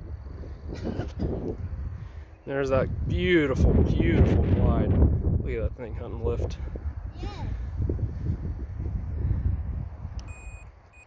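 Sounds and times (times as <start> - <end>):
wind on microphone: 0.0 - 10.7.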